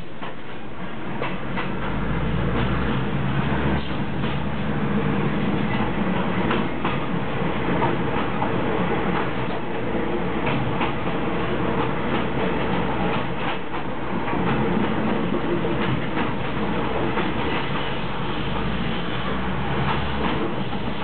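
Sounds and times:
railcar running noise and low hum: 0:00.0 - 0:21.0
wheels clicking over rail joints: 0:00.0 - 0:21.0.

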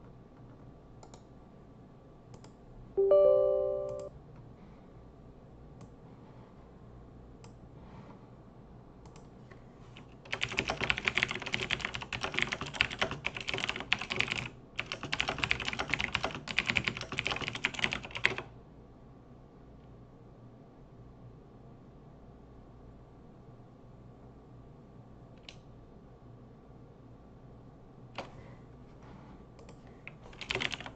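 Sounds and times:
fast typing on keyboard: 0:10.0 - 0:18.5, 0:30.1 - 0:30.9.

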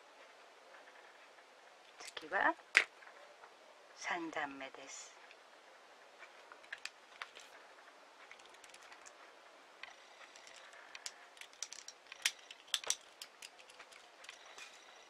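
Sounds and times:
beads clicking together: 0:09.9 - 0:14.9.

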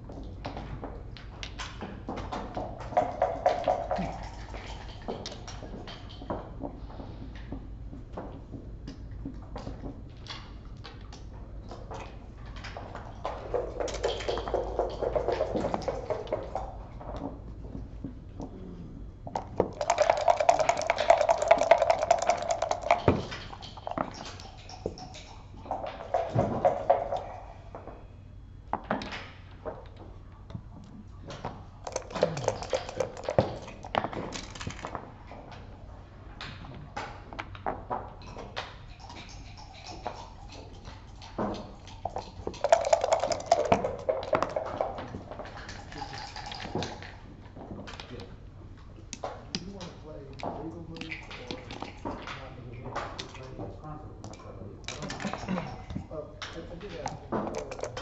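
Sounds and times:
clicks of game pieces and dice: 0:31.9 - 0:34.9, 0:57.0 - 0:58.0.

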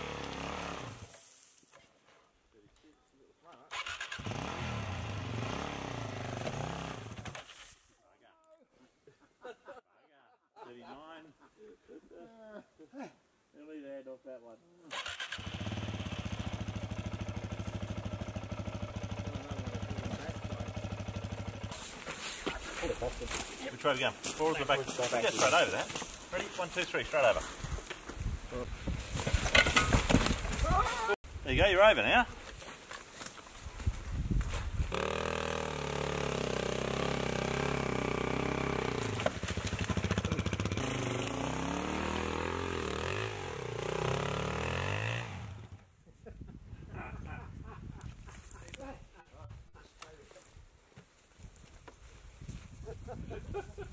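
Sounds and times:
dirt bike engine idling: 0:15.4 - 0:21.8, 0:34.9 - 0:45.7.

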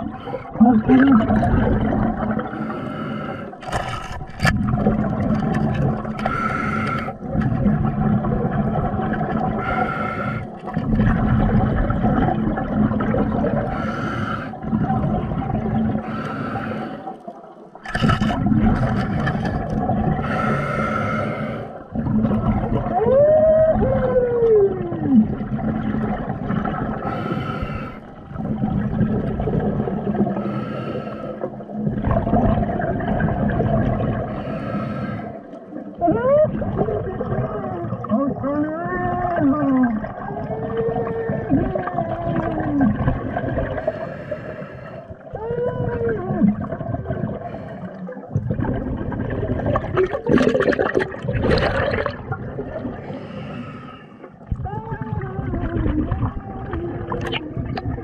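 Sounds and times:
diver breathing underwater: 0:00.0 - 0:04.2, 0:05.0 - 0:07.4, 0:09.3 - 0:11.3, 0:13.5 - 0:15.0, 0:15.7 - 0:17.3, 0:17.9 - 0:22.9, 0:26.6 - 0:28.4, 0:30.2 - 0:31.7, 0:34.0 - 0:35.8, 0:43.4 - 0:45.3, 0:46.9 - 0:48.8, 0:51.5 - 0:54.5
exhaled bubbles: 0:00.0 - 0:58.0.

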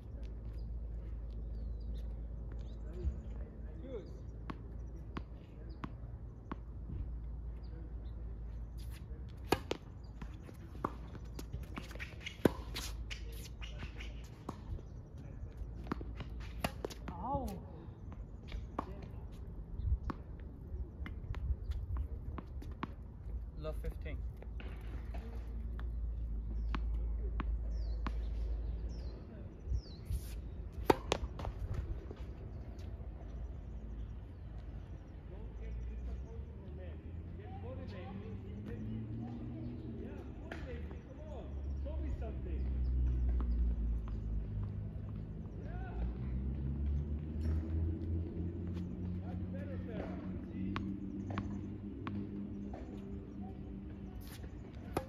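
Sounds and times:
tennis ball bouncing on court: 0:04.4 - 0:07.7, 0:08.8 - 0:14.9, 0:15.6 - 0:19.2, 0:21.0 - 0:23.1, 0:24.4 - 0:29.0, 0:30.2 - 0:33.4, 0:42.6 - 0:45.4, 0:49.9 - 0:55.0
racket hitting tennis ball: 0:08.8 - 0:14.7, 0:15.9 - 0:17.2, 0:30.1 - 0:31.8, 0:54.2 - 0:55.0.

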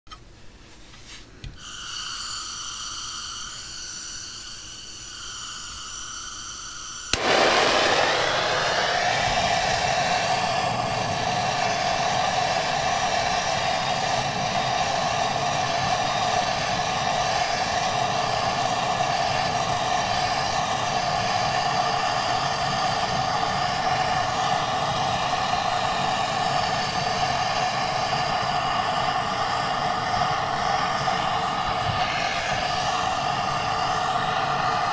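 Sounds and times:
gas hissing from blowtorch: 0:01.6 - 0:34.9
blowtorch flame roaring: 0:07.1 - 0:34.9
blowtorch igniter click: 0:07.1 - 0:34.9.

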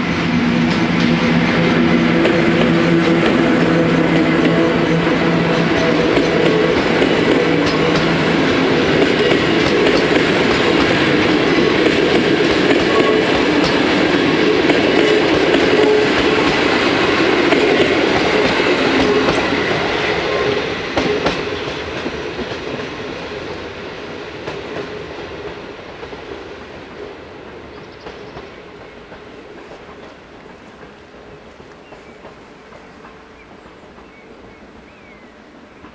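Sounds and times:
train wheels rolling on rails: 0:00.0 - 0:35.9.

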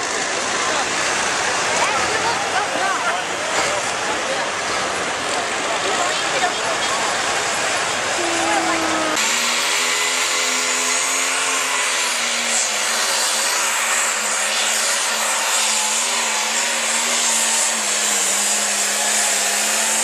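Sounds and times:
tractor diesel engine droning: 0:00.0 - 0:14.0.

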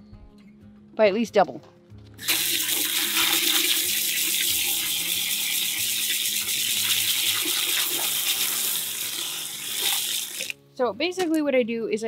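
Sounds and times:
hose spraying water into bucket: 0:02.2 - 0:10.6.

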